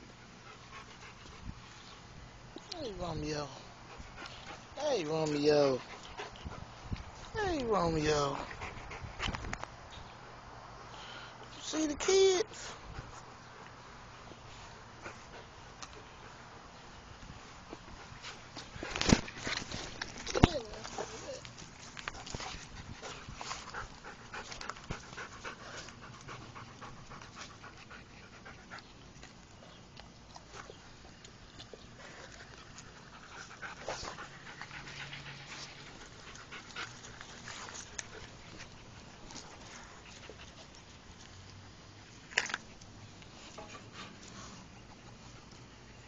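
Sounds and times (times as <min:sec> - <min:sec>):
puppies panting: 0:00.0 - 0:02.1, 0:02.7 - 0:09.4, 0:17.7 - 0:42.1, 0:43.1 - 0:46.0.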